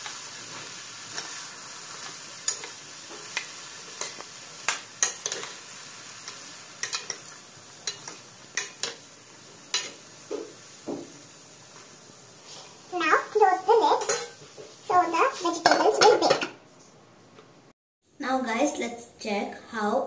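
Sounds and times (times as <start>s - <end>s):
vegetables sizzling in a pan: 0.0s - 16.6s
spatula scraping and clinking pan: 2.0s - 5.6s, 6.2s - 9.0s, 13.9s - 14.4s.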